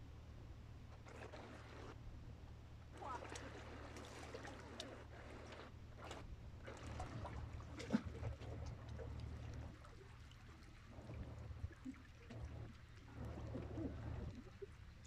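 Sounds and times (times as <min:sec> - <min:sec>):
water lapping against rocks: 0:01.0 - 0:02.0, 0:02.9 - 0:15.0.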